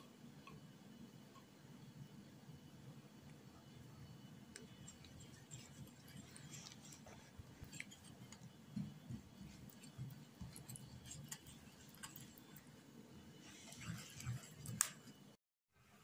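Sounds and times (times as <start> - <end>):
whisk ticking against ceramic bowl: 4.6 - 12.7.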